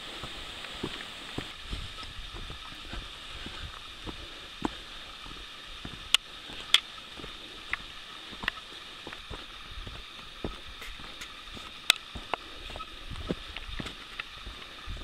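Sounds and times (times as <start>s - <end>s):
footsteps on wet leaves: 0.0s - 15.0s
steady high hiss: 0.0s - 15.0s.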